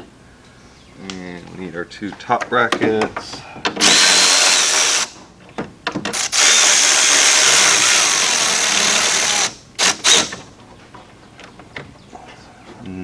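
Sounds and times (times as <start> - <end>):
cordless power driver spinning: 3.8 - 5.1.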